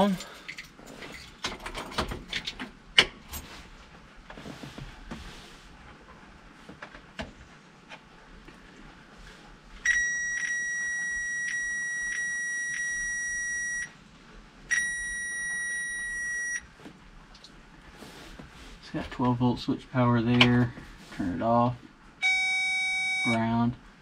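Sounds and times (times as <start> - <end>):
high-pitched tester tone: 9.8 - 14.0, 14.7 - 16.6, 22.2 - 23.5.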